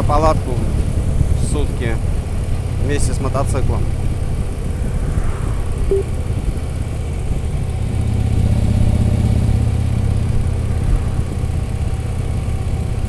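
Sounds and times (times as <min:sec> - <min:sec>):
short high tone: 0:05.9 - 0:06.5.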